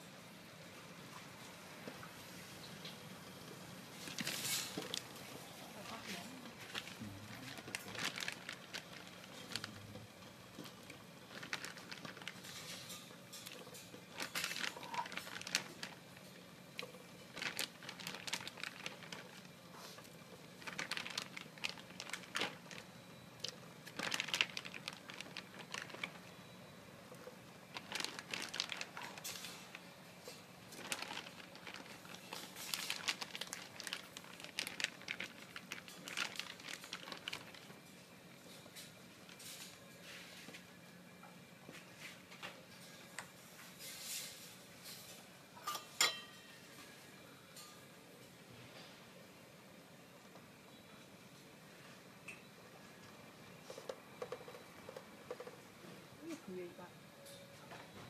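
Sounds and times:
faint steady hum: 0.0s - 58.0s
plastic bag crinkling: 4.0s - 26.4s, 27.2s - 29.9s, 30.7s - 37.9s.

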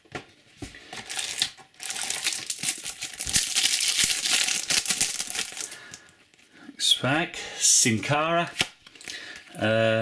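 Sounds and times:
foil wrapper crinkling: 1.0s - 6.1s.

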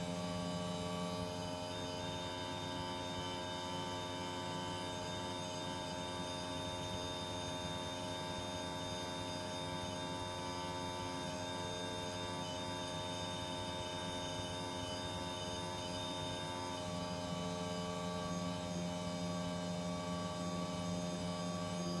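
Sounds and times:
air conditioner unit humming: 0.0s - 2.9s.

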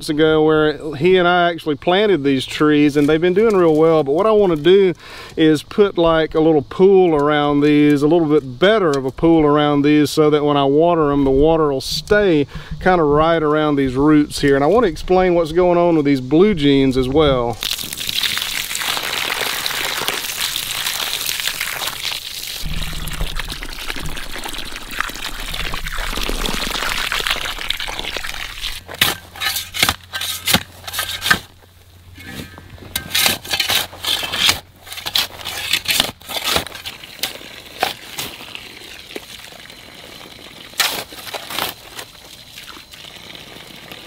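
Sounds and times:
hose water pouring onto earth: 17.6s - 31.3s, 34.8s - 44.0s
hoe chopping into dirt: 28.7s - 31.5s, 32.2s - 38.4s.

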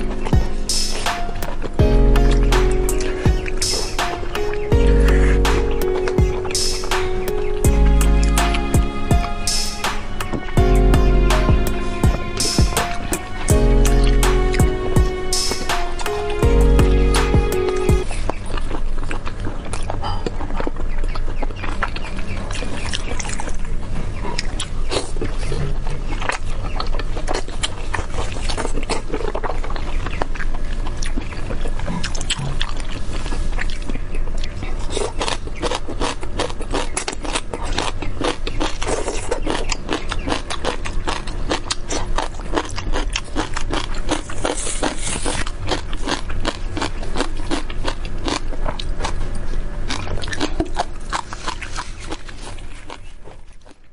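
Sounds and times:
chewing meat: 18.0s - 53.9s.

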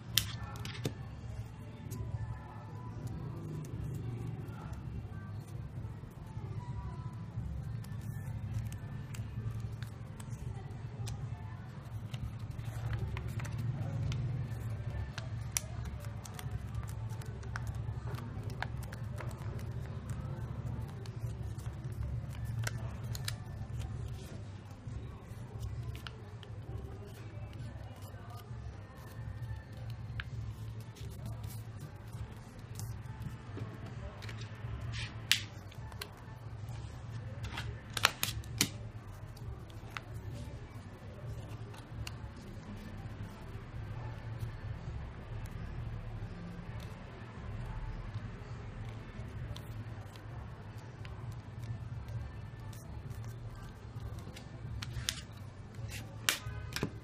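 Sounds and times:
paper folding and crinkling: 7.5s - 42.6s, 49.2s - 57.0s.

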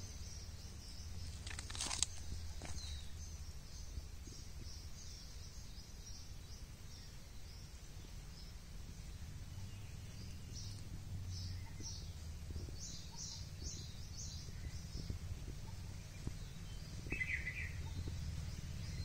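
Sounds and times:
small bird chirping: 0.0s - 19.0s
steady low rumble: 0.0s - 19.0s
low buzzy bird call: 9.2s - 19.0s.

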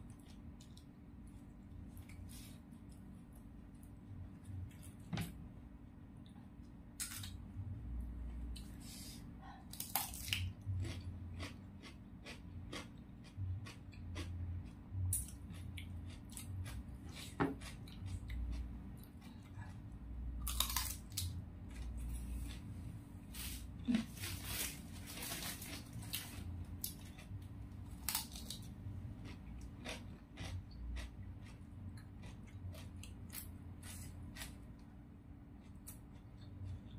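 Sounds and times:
person chewing crunchy cucumber: 9.7s - 24.0s, 25.7s - 36.9s.

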